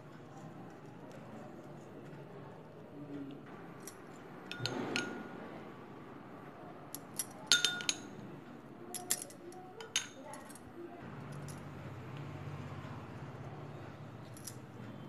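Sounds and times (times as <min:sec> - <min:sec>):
glass kitchenware clinking: 0:04.5 - 0:05.4, 0:07.0 - 0:08.2, 0:09.8 - 0:10.5.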